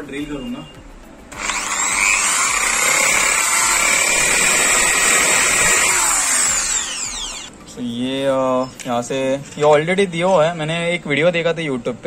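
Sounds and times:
impact drill whining: 0:01.4 - 0:07.5.

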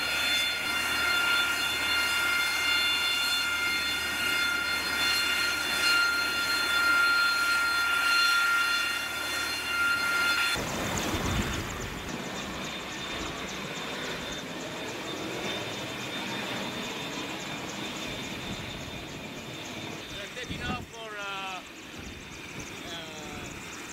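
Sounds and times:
jet engine whine and roar: 0:00.0 - 0:23.9
wind buffeting on microphone: 0:10.6 - 0:13.4, 0:18.4 - 0:21.2, 0:21.9 - 0:23.7.

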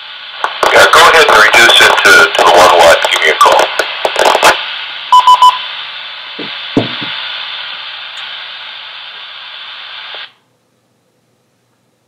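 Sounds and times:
radio carrier hiss: 0:00.0 - 0:10.4
short radio beeps: 0:05.1 - 0:05.6.

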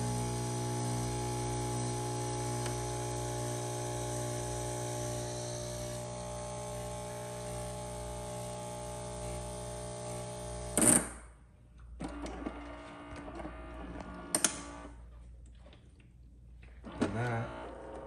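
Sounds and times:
espresso machine humming: 0:00.0 - 0:10.8.

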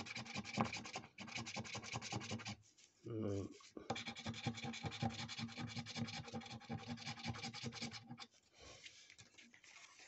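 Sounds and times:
scratching scratchcard coating: 0:00.0 - 0:02.6, 0:04.0 - 0:08.2.

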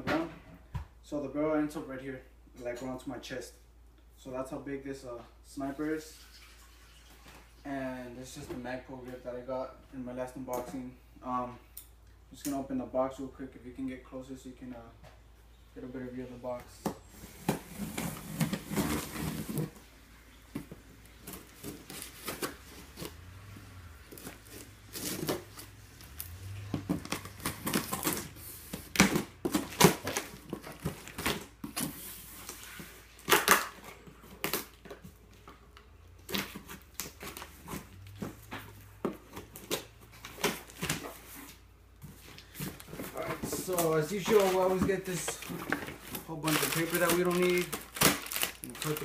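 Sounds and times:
cardboard flaps scraping and rustling: 0:17.0 - 0:33.3, 0:36.3 - 0:49.0.

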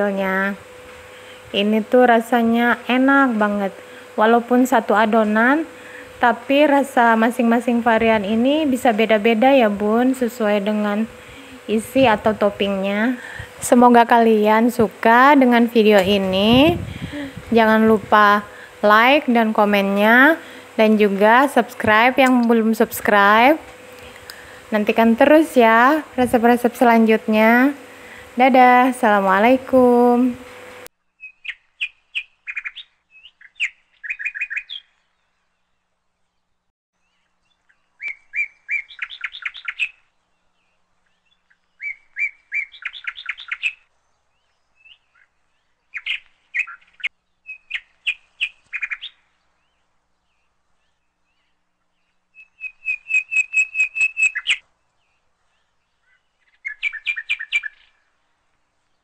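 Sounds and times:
songbird chirping: 0:31.0 - 0:59.0.

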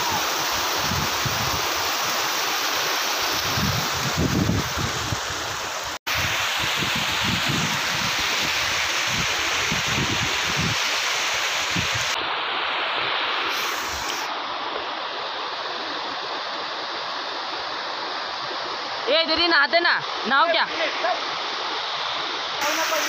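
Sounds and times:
wind gusting on microphone: 0:00.0 - 0:02.1, 0:03.3 - 0:10.9, 0:11.7 - 0:12.2
stream rushing over rocks: 0:00.0 - 0:23.0.

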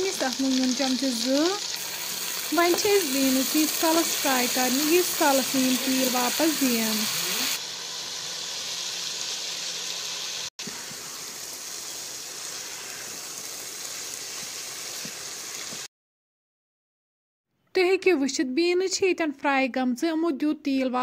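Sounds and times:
beans sizzling in hot oil: 0:00.0 - 0:15.9.

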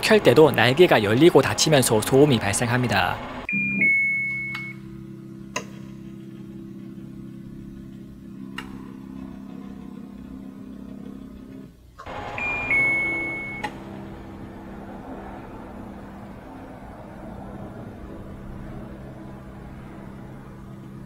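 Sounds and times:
two-note beep: 0:03.5 - 0:04.8, 0:12.4 - 0:13.7
stepper motor humming: 0:04.7 - 0:21.0
click: 0:08.5 - 0:08.8.

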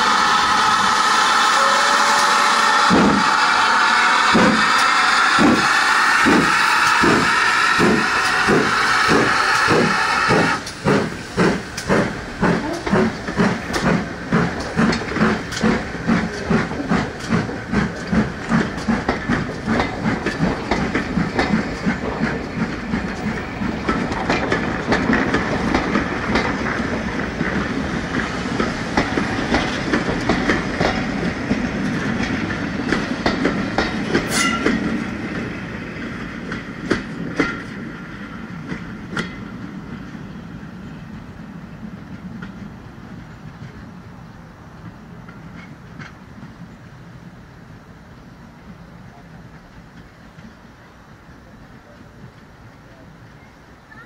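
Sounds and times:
steam train chuffing: 0:00.0 - 0:54.0
wheels clicking over rail joints: 0:04.3 - 0:40.2, 0:41.2 - 0:46.9.

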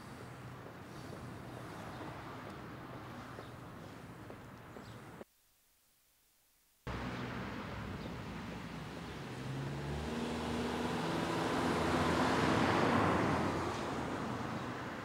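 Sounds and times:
car passing by: 0:06.9 - 0:15.0.

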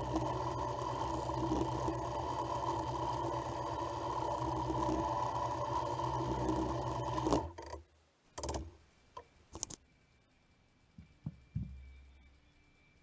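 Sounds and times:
drill press boring wood: 0:00.0 - 0:07.8
soft thumps: 0:11.0 - 0:11.9.

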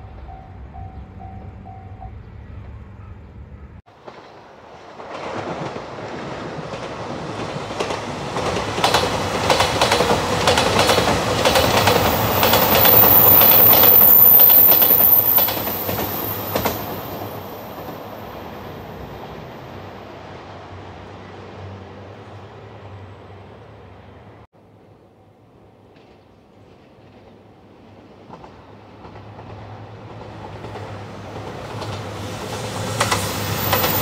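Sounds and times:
train rumble: 0:00.0 - 0:24.5, 0:25.5 - 0:34.0
thin high squeal: 0:12.5 - 0:17.0.

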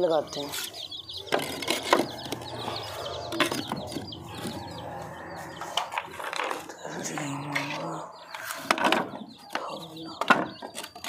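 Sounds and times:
small birds chirping: 0:00.0 - 0:11.0
wooden planks knocking on bricks: 0:08.6 - 0:11.0.

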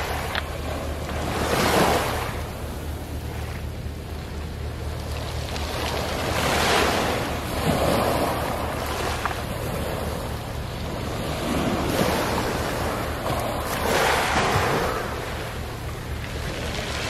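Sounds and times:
low rumble: 0:00.0 - 0:17.0
waves washing over pebbles: 0:00.0 - 0:17.0.

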